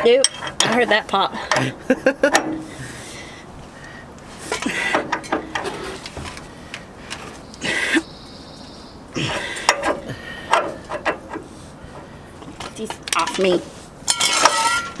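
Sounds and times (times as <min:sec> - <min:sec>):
person grunting with effort: 0:09.2 - 0:10.3.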